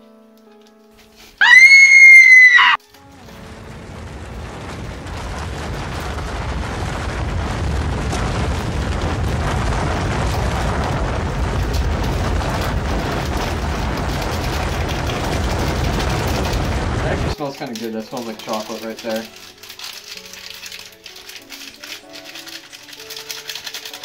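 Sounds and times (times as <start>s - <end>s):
rumbling roar with crackle: 1.4s - 17.4s.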